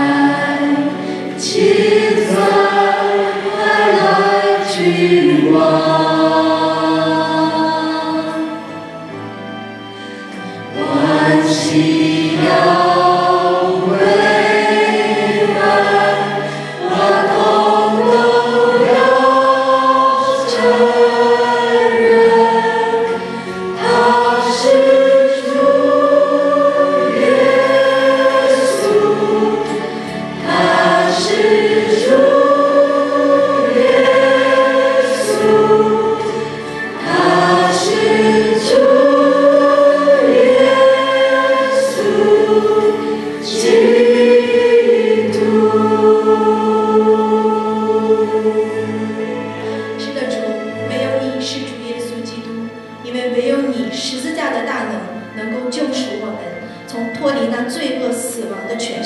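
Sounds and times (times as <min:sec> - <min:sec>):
group singing worship song: 0:00.0 - 0:09.2, 0:10.0 - 0:51.4.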